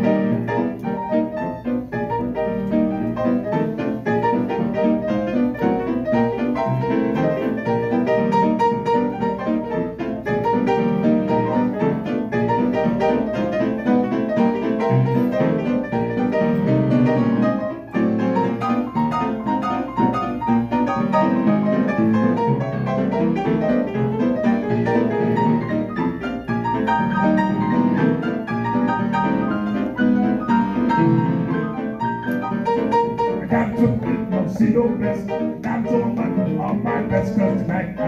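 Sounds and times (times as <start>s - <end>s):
solo jazz piano: 0.0s - 38.0s.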